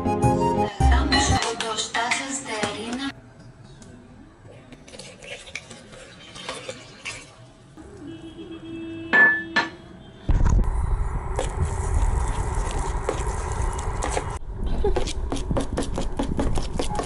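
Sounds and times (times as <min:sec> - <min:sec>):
dishes and utensils clinking: 0:09.1 - 0:09.8.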